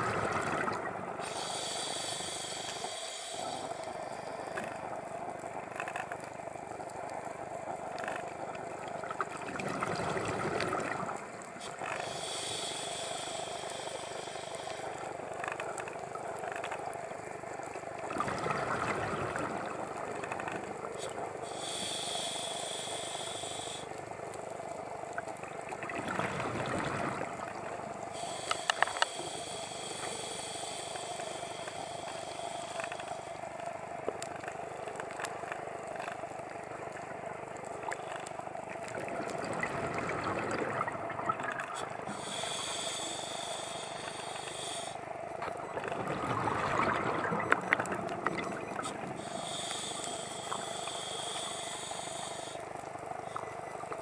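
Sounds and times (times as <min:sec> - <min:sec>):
rush of bubbles: 0:00.0 - 0:01.0, 0:09.3 - 0:11.2, 0:18.1 - 0:19.7, 0:25.8 - 0:27.6, 0:39.0 - 0:42.1, 0:46.0 - 0:48.8
diver breathing through regulator: 0:01.2 - 0:04.8, 0:11.6 - 0:15.2, 0:21.4 - 0:24.0, 0:26.6 - 0:33.5, 0:41.8 - 0:45.1, 0:49.2 - 0:52.8
steady hum: 0:27.0 - 0:54.0.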